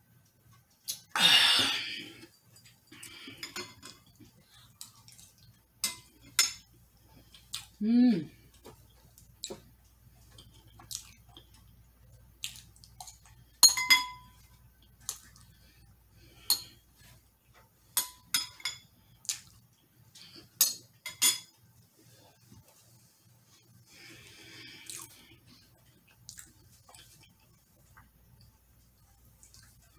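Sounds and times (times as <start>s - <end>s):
metal spoons clinking on glass bowls: 2.6s - 4.1s, 13.6s - 14.4s, 16.5s - 16.8s, 18.0s - 18.9s, 20.6s - 21.5s.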